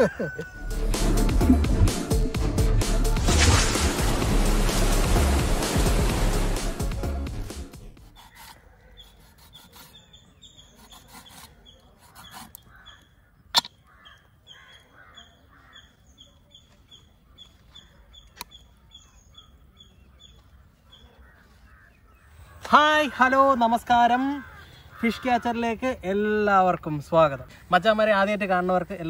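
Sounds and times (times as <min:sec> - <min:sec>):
knife scraping fish on board: 0:08.0 - 0:12.6.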